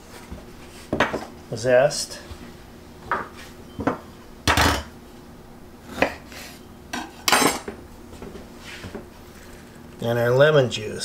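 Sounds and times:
kitchen utensils clinking and knocking: 0:04.5 - 0:04.9, 0:07.3 - 0:07.7.

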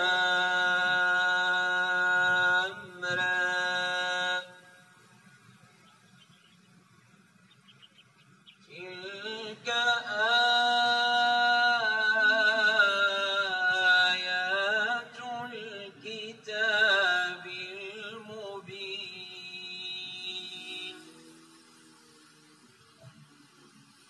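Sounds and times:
man chanting melodically: 0:00.0 - 0:05.0, 0:08.6 - 0:21.4.

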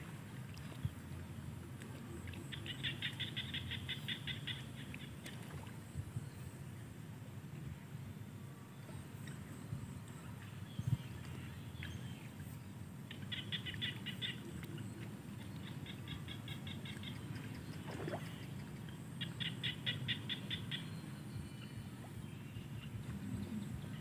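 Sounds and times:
frogs calling in clicking pulses: 0:02.3 - 0:05.6, 0:13.1 - 0:20.9.

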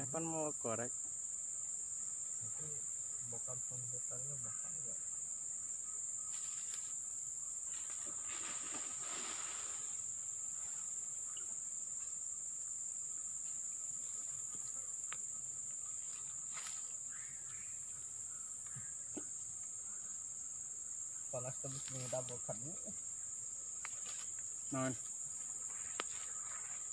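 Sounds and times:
insect chorus drone: 0:00.0 - 0:26.9
faint rustles: 0:07.6 - 0:11.0.

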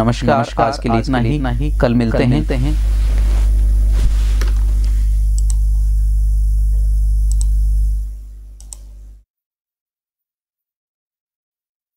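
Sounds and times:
low electrical hum: 0:00.0 - 0:09.2
light clicks: 0:07.2 - 0:07.6.

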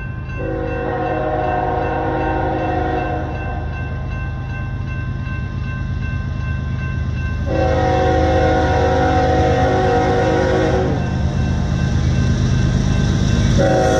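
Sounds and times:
crossing bell ringing: 0:00.0 - 0:13.9
low rumble of diesel train: 0:00.0 - 0:13.9
locomotive air horn: 0:00.4 - 0:03.6, 0:07.5 - 0:11.0, 0:13.6 - 0:13.9.

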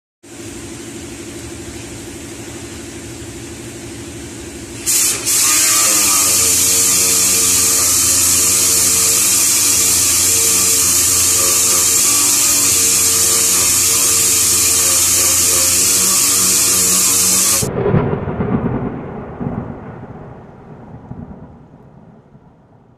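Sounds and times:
steady low hum: 0:00.2 - 0:22.3
orbital sander running: 0:00.7 - 0:17.7.

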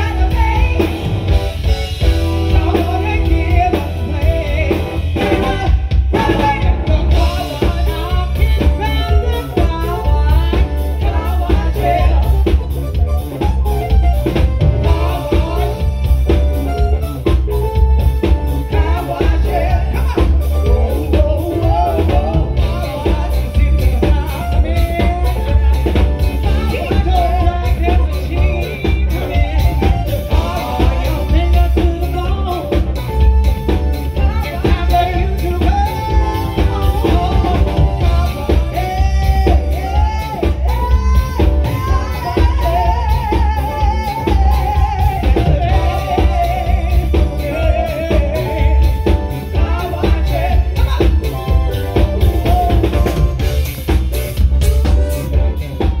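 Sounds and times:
woman singing into microphone: 0:00.0 - 0:01.2, 0:02.4 - 0:12.9, 0:26.4 - 0:33.0, 0:34.0 - 0:51.4
live band playing: 0:00.0 - 0:56.0.

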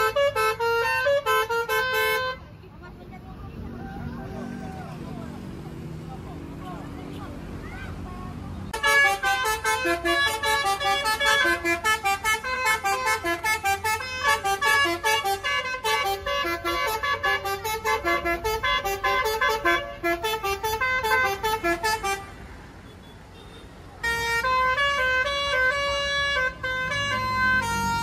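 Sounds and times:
bus musical horn melody: 0:00.0 - 0:02.6, 0:08.7 - 0:28.0.

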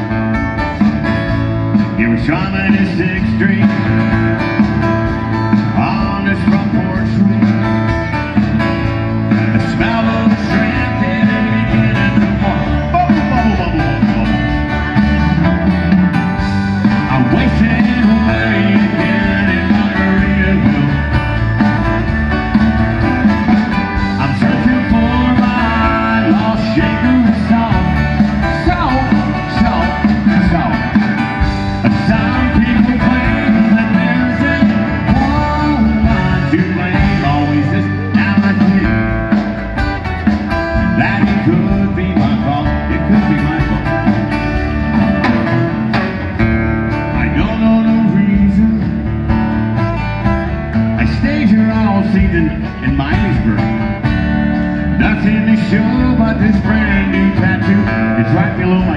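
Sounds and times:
live country band: 0:00.0 - 0:58.9
person singing: 0:09.4 - 0:14.4, 0:17.0 - 0:21.4, 0:24.0 - 0:31.0, 0:31.8 - 0:39.2, 0:40.8 - 0:44.2, 0:47.1 - 0:49.1, 0:55.0 - 0:58.9.

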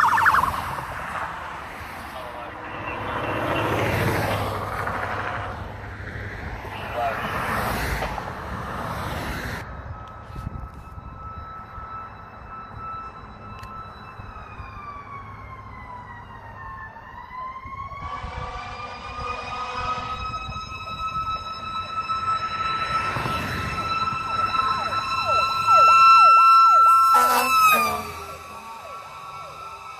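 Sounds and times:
second fuller siren tone: 0:00.0 - 0:01.2, 0:09.6 - 0:29.9
fire engine siren wailing: 0:00.0 - 0:29.9.

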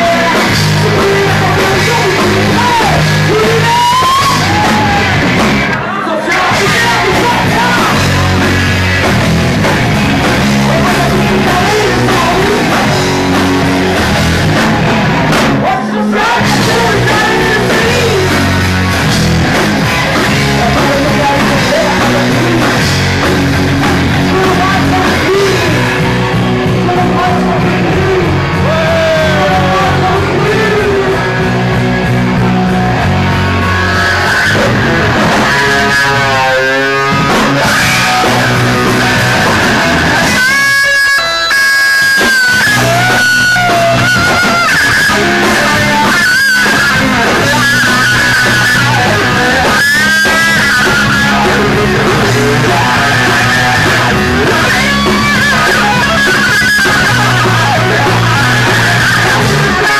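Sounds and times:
distorted live rock band: 0:00.0 - 0:59.9
female singer: 0:10.7 - 0:13.0, 0:15.6 - 0:18.5, 0:20.6 - 0:22.8.

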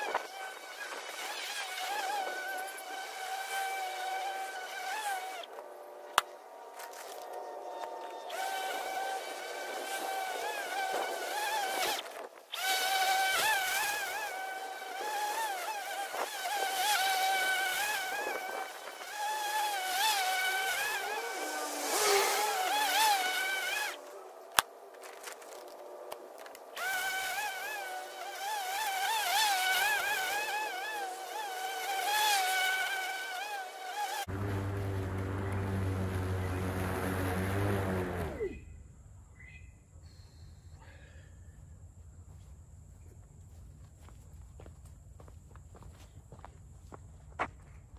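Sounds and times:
lawn mower motor whine: 0:16.4 - 0:24.1, 0:34.3 - 0:38.4
steady low hum: 0:34.3 - 0:39.3.

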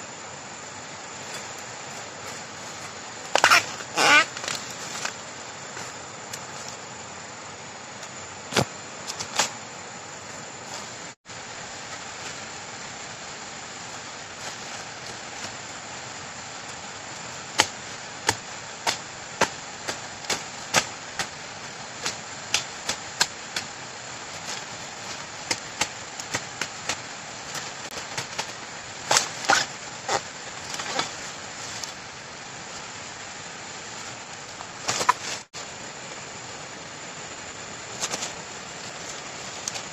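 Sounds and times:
steady hiss: 0:00.0 - 0:39.9
machete chopping bamboo: 0:17.5 - 0:21.4.

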